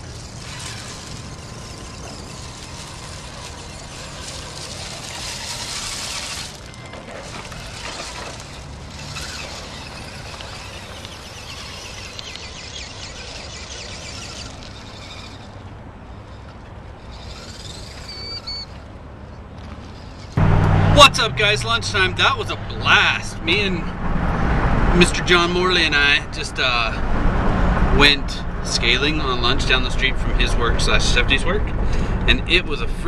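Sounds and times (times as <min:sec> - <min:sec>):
gravel crunching under tyres: 0:00.0 - 0:23.9.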